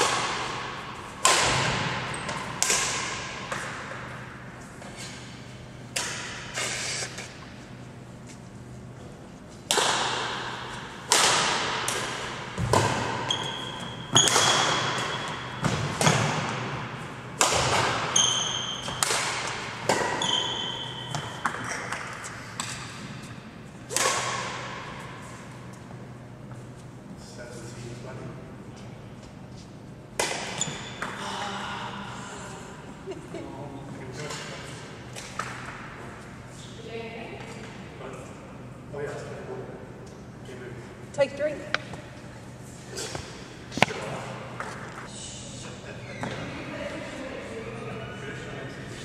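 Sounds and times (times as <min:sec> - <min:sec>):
shuttlecock struck with rackets: 0:00.0 - 0:03.8, 0:09.7 - 0:13.3, 0:14.1 - 0:16.7, 0:17.4 - 0:18.2, 0:18.8 - 0:20.2, 0:23.9 - 0:24.9
shoes squeaking on floor: 0:13.2 - 0:15.7, 0:18.1 - 0:19.0, 0:20.1 - 0:21.8.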